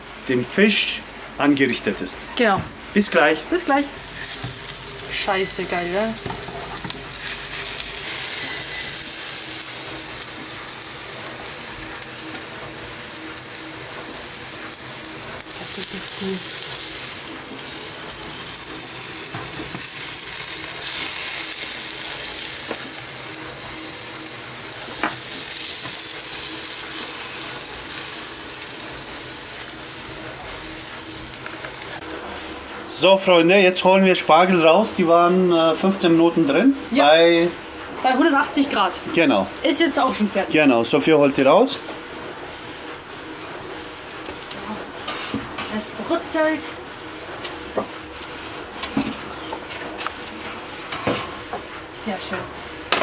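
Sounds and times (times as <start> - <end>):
fish frying sizzle: 4.0 - 32.0.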